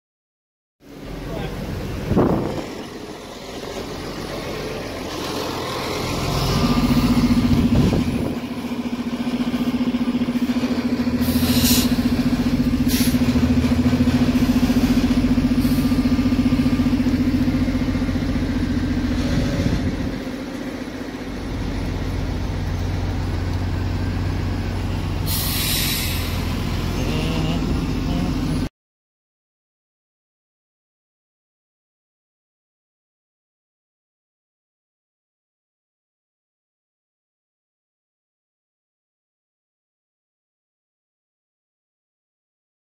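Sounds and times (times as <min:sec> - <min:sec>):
electric bus humming: 0:00.8 - 0:28.7
street traffic: 0:00.8 - 0:28.7
air hissing: 0:11.2 - 0:12.1, 0:25.2 - 0:26.6.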